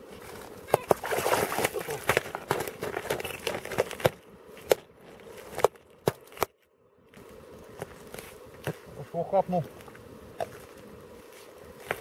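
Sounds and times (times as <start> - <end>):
crackling patter: 0.1 - 8.9.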